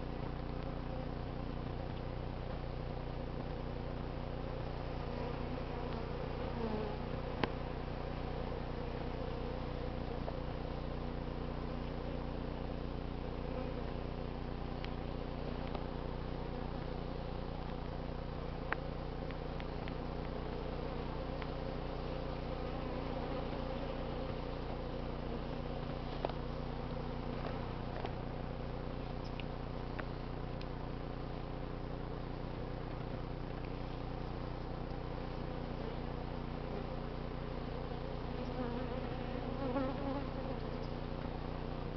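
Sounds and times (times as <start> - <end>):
bees buzzing: 4.2 - 29.5, 33.8 - 41.4.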